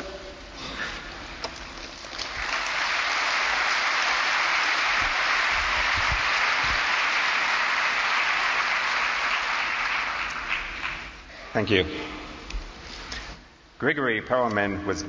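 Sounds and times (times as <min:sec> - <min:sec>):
audience applauding: 0:02.0 - 0:11.3.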